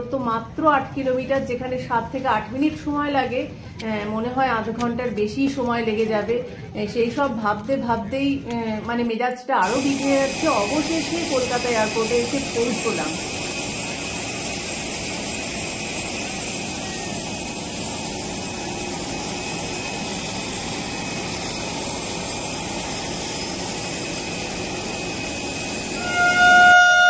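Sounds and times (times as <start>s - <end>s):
faint high whine: 9.6s - 27.0s
jet aircraft drone: 9.6s - 27.0s.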